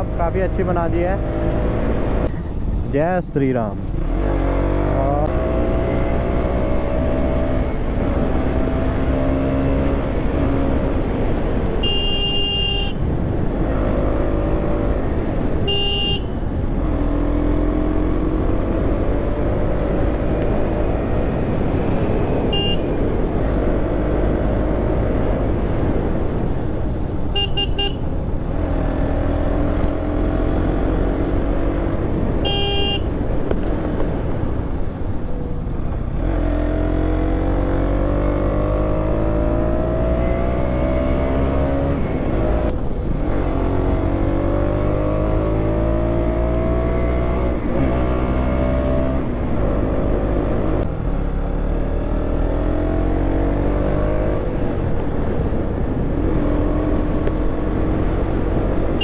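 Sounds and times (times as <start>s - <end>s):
motorcycle engine revving: 3.9s - 12.9s, 36.1s - 55.4s
horn toots: 11.8s - 13.0s, 15.6s - 16.4s, 22.4s - 23.0s, 27.3s - 28.1s, 32.4s - 33.1s.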